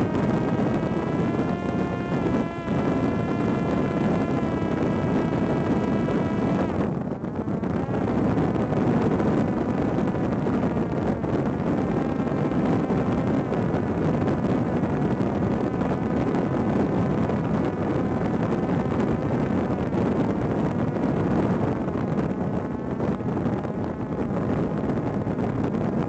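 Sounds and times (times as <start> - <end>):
faint wavering hum: 0.0 - 21.9
rushing wind: 0.0 - 26.0.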